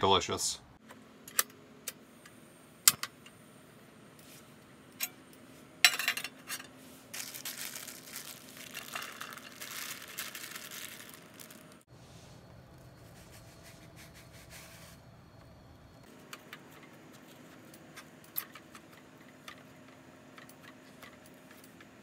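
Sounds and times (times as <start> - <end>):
plastic bag crinkling: 7.1 - 11.9.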